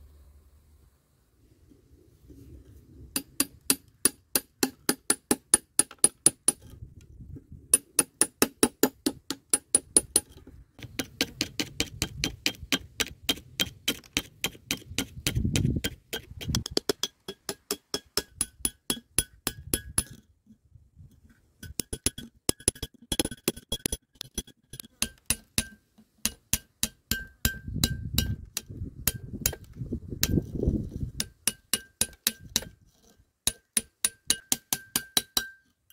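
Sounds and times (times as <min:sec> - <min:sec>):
hammer striking steel chisel: 0:03.1 - 0:06.8, 0:07.7 - 0:20.2, 0:21.6 - 0:30.5, 0:31.2 - 0:32.8, 0:33.4 - 0:35.8.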